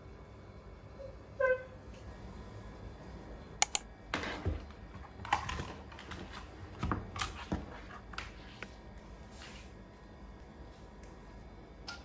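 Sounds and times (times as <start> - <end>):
sharp clicks: 3.6 - 3.9.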